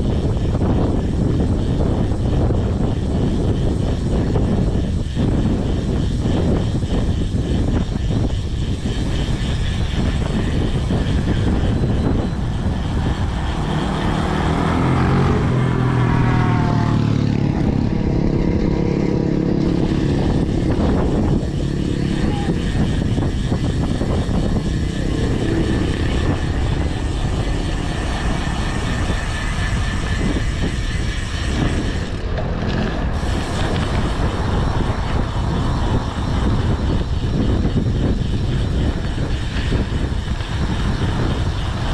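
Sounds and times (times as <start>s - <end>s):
wind buffeting microphone: 0.0s - 41.9s
engine passing by: 9.8s - 41.9s.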